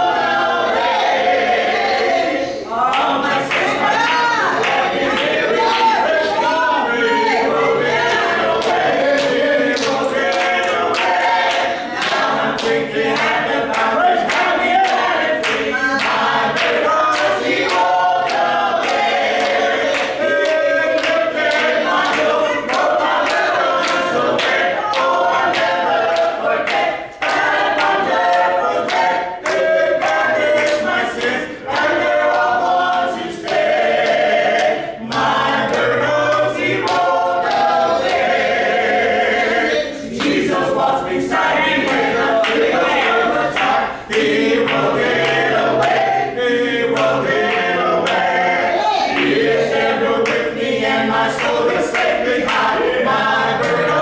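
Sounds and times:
choir singing a cappella: 0.0s - 54.0s
hand claps: 8.0s - 38.3s, 40.1s - 46.2s, 46.9s - 54.0s.

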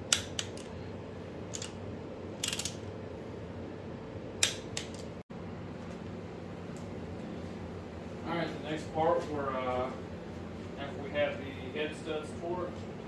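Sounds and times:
torque wrench clicks: 2.4s - 2.8s.

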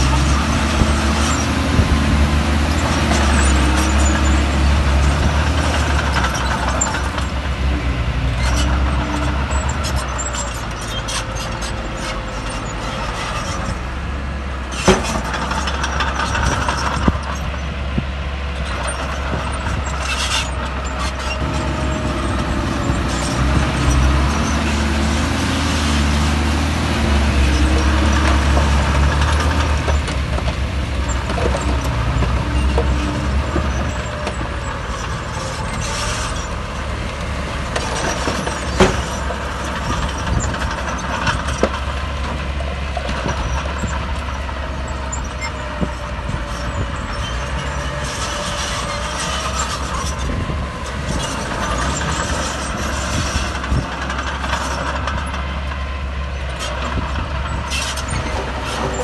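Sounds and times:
diesel machinery rumbling: 0.0s - 59.0s.

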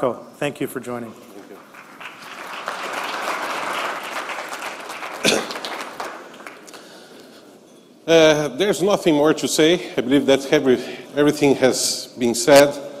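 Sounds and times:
audience applauding: 1.4s - 7.1s.

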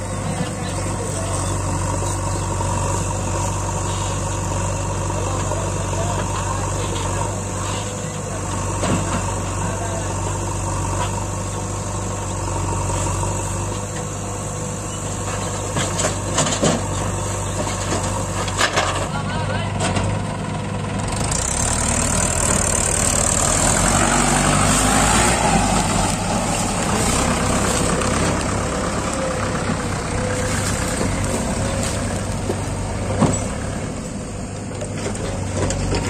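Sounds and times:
diesel engines running: 0.0s - 36.0s.

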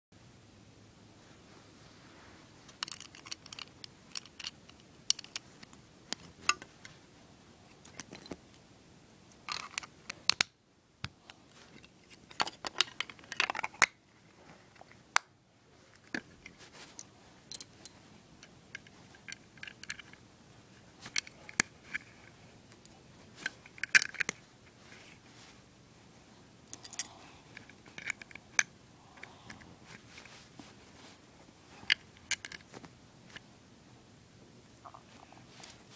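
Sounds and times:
plastic bricks clicking together: 2.8s - 5.4s.

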